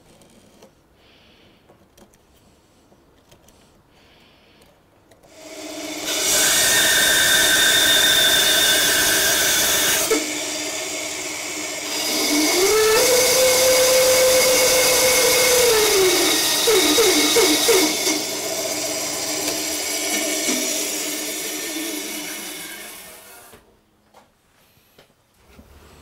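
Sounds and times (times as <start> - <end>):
bandsaw cutting wood: 5.3 - 23.6.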